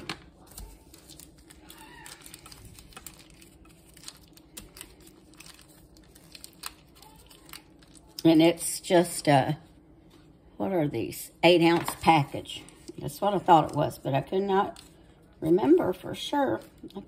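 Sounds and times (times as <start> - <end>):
low steady hum: 0.0 - 17.0
foil wrapper crinkling: 0.4 - 8.3.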